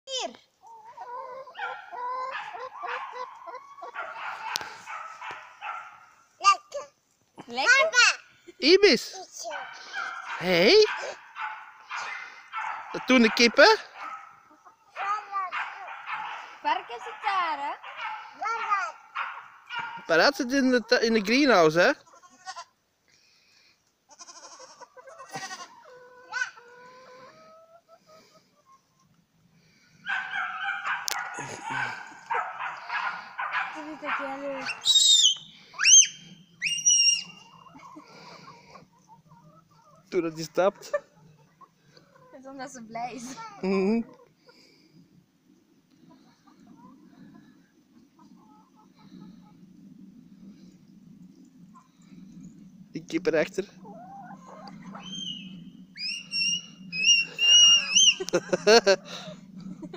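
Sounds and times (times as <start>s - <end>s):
animal yelping: 30.1s - 38.4s, 53.8s - 58.4s
animal whining calls: 30.3s - 38.4s, 53.8s - 58.4s
farm animal long call: 56.1s - 58.4s.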